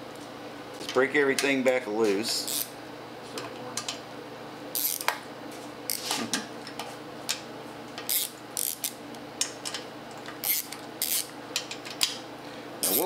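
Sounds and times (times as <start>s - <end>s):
steady low hum: 0.0s - 13.0s
socket ratchet clicking: 8.1s - 9.0s, 10.4s - 11.3s.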